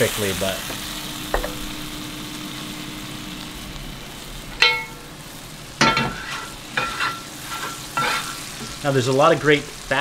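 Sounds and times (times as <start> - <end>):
meat sizzling in a pan: 0.0 - 10.0
metal utensil clinking cookware: 4.6 - 5.1, 5.8 - 8.4.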